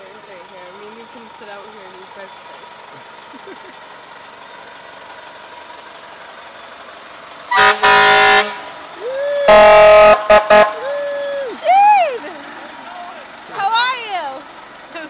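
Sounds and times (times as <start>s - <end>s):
truck engine running low: 0.0s - 15.0s
truck air horn blasts: 7.4s - 8.8s, 9.5s - 11.0s
siren whooping: 9.0s - 12.3s.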